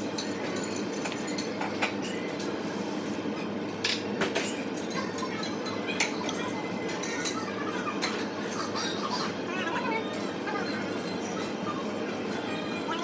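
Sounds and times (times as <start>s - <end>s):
dishes and cutlery clinking: 0.0s - 2.6s, 3.4s - 8.9s
restaurant background din: 0.0s - 13.0s.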